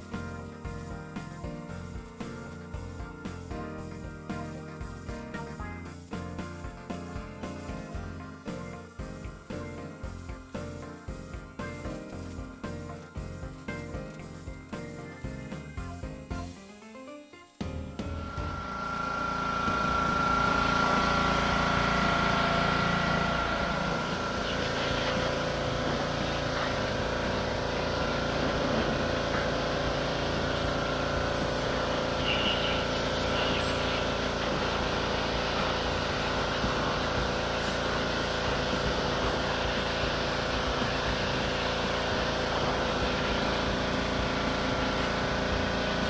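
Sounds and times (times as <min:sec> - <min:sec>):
pressure washer motor humming: 0:00.0 - 0:16.9, 0:17.6 - 0:46.0
water jet hissing: 0:18.2 - 0:46.0.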